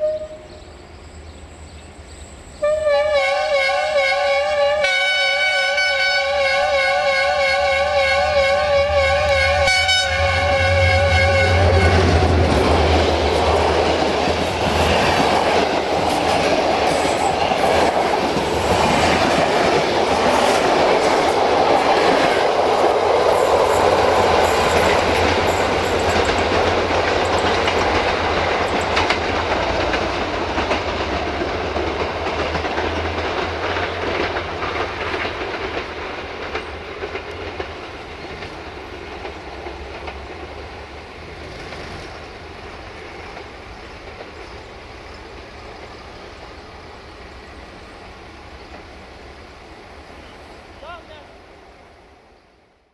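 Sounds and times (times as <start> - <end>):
diesel train passing: 0.0 - 52.9
wheels clattering over rail joints: 23.5 - 40.6.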